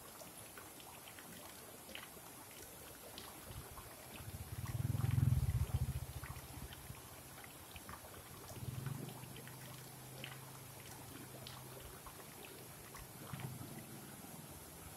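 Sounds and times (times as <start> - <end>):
water splashes: 0.0 - 14.9
low hum: 4.3 - 6.7.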